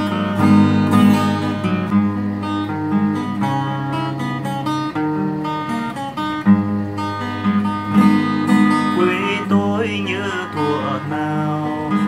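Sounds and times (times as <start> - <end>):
acoustic guitar chords: 0.0 - 12.0
person singing: 8.7 - 12.0.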